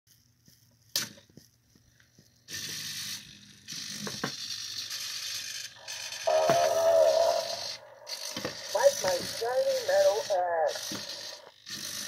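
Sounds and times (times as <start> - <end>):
toy robot gears whirring: 2.5 - 12.0.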